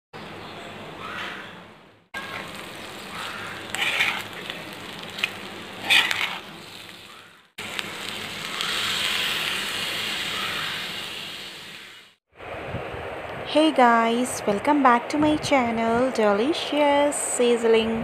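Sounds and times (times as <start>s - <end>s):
fried rice sizzling in a pan: 2.2s - 12.2s
spoon stirring and scraping: 3.3s - 6.9s.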